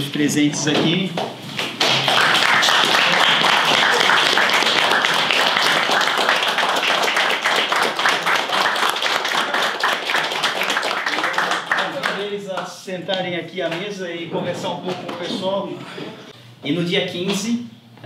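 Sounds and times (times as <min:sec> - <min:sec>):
small group clapping: 0:01.2 - 0:13.2.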